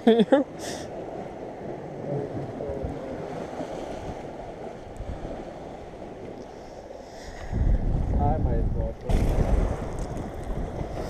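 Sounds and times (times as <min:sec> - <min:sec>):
waves washing against breakwall: 0:00.8 - 0:11.0
wind buffeting microphone: 0:07.3 - 0:11.0.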